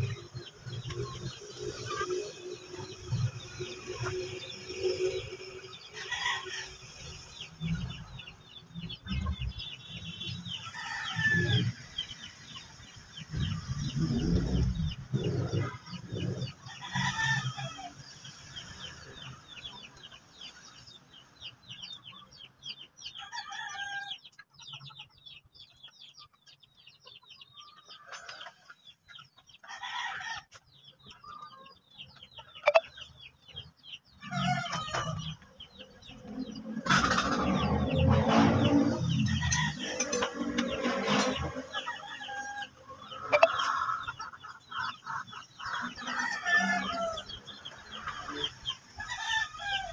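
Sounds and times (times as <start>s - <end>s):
chickens clucking: 0.0s - 49.9s
rooster crows: 46.0s - 47.3s.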